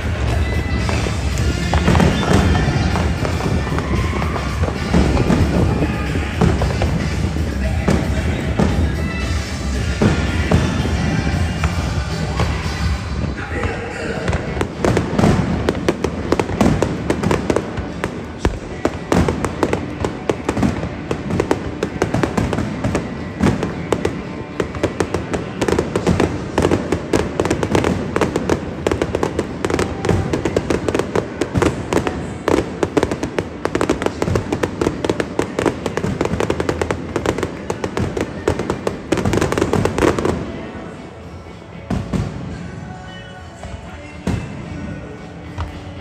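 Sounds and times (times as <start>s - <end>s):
firework bangs and crackle: 0.0s - 40.7s, 41.9s - 42.9s.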